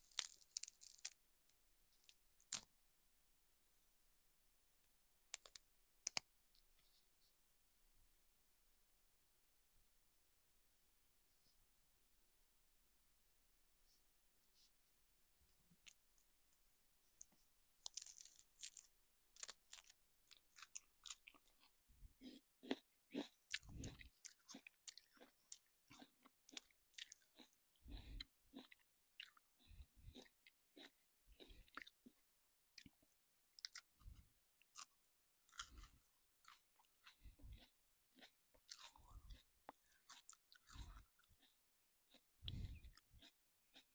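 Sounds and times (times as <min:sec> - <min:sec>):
bread crackling and rustling: 0:00.0 - 0:01.2.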